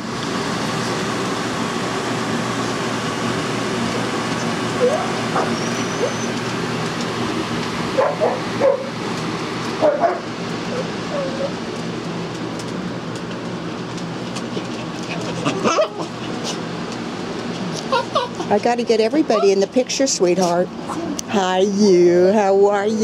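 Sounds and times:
fan humming: 0:00.0 - 0:23.0
small dogs barking and yipping: 0:04.4 - 0:06.5, 0:08.0 - 0:09.0, 0:09.8 - 0:11.6, 0:14.4 - 0:16.6, 0:17.8 - 0:18.5, 0:19.3 - 0:19.6.

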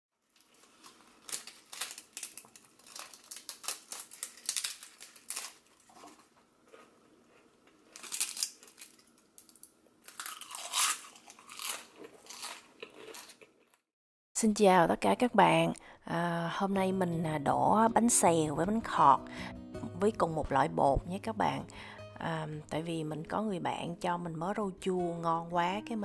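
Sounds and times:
crispy crepes crunching: 0:00.2 - 0:13.8.

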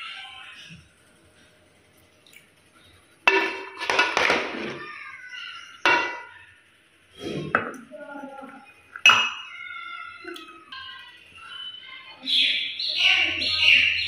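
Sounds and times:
metal ladle clinking on pot: 0:03.3 - 0:04.5, 0:09.0 - 0:09.5.

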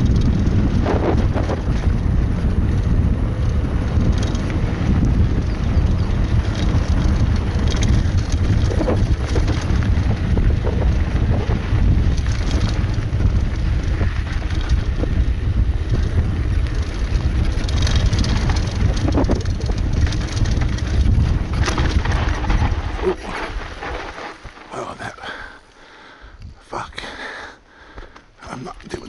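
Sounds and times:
wind buffeting microphone: 0:00.0 - 0:24.2
bike rattling over bumps: 0:00.0 - 0:25.6
tyre rumble on dirt: 0:04.0 - 0:25.1.

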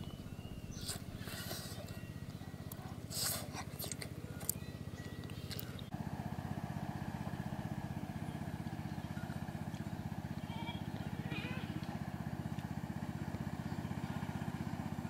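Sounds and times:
small engine running: 0:00.0 - 0:15.0
eating clicks: 0:00.7 - 0:05.9.

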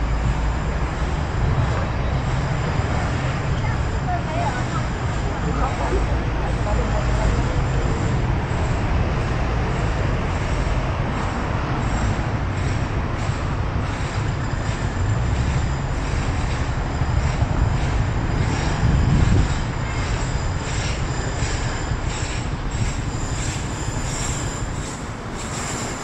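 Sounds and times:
road traffic passing: 0:00.0 - 0:26.0.

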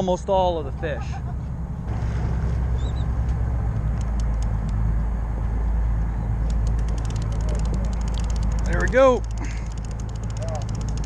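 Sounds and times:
boat engine rumble: 0:00.0 - 0:11.0
faint clicks: 0:03.9 - 0:04.8, 0:06.4 - 0:11.0.

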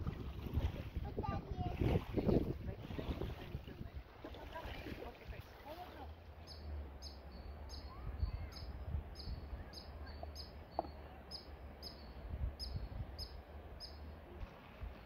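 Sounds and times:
wind rumble on microphone: 0:00.0 - 0:05.5, 0:07.9 - 0:10.2, 0:12.1 - 0:13.5.

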